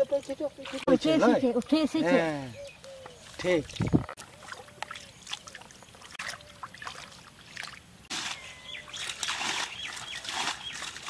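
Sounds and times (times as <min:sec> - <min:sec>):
hands splashing in muddy water: 0:03.6 - 0:11.0.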